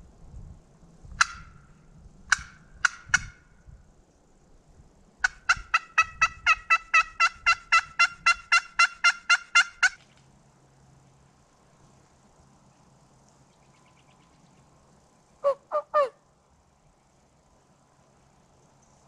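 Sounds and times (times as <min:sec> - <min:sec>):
turkey calls from a phone: 0:05.2 - 0:10.0, 0:15.4 - 0:16.2.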